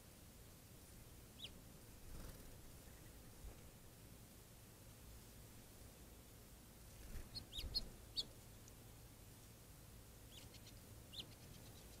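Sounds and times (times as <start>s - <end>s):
small birds chirping: 1.3s - 3.8s, 6.9s - 12.0s.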